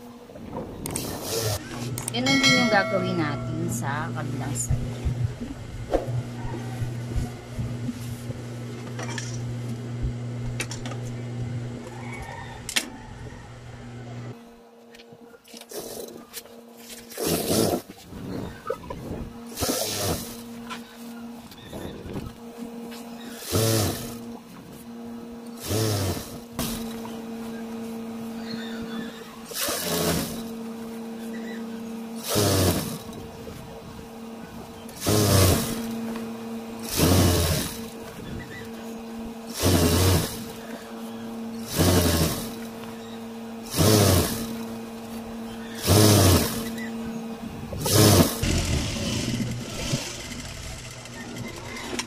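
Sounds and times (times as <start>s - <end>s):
sewing machine motor humming: 19.5s - 20.8s, 21.4s - 24.6s, 25.4s - 52.0s.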